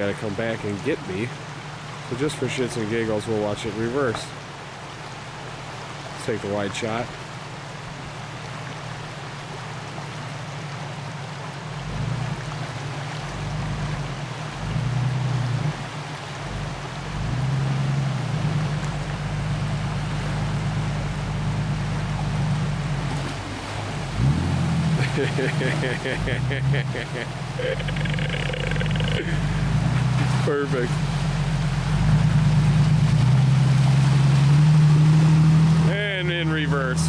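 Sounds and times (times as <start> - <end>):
river water rushing: 0.0 - 37.0
engine revving: 11.8 - 37.0.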